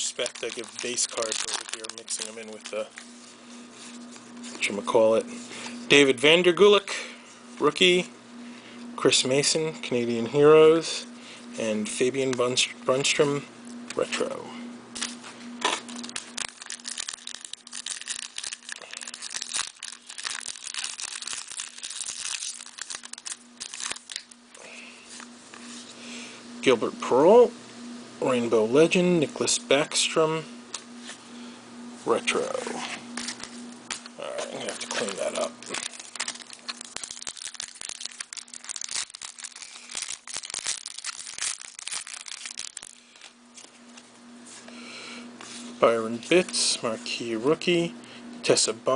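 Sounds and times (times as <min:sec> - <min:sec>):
wrapper tearing and crinkling: 0:00.0 - 0:03.0, 0:15.0 - 0:24.4, 0:33.1 - 0:43.7
faint steady hum: 0:00.0 - 0:48.9.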